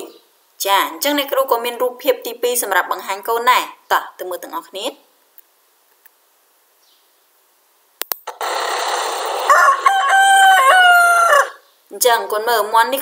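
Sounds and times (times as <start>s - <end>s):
steady outdoor hiss: 0.0s - 13.0s
rooster crowing: 8.6s - 11.6s.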